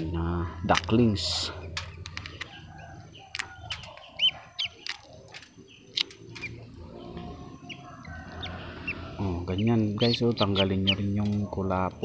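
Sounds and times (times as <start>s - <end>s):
ducklings peeping: 0.0s - 12.0s
eggshell cracking: 3.2s - 6.6s.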